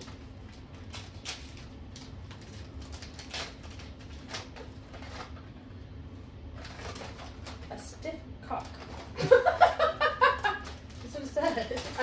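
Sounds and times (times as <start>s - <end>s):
wrapping paper rustling and tearing: 0.0s - 5.5s, 6.6s - 7.8s, 10.3s - 12.0s.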